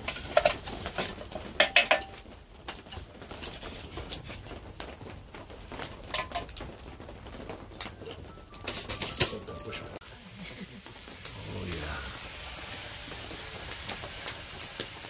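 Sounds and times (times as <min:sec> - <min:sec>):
metal utensil clinking in pot: 0:01.6 - 0:02.2, 0:06.1 - 0:06.5.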